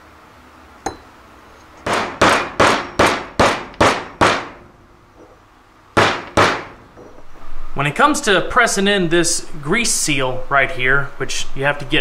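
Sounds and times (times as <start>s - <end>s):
hammer blows ringing on metal: 1.8s - 4.6s, 6.0s - 6.8s.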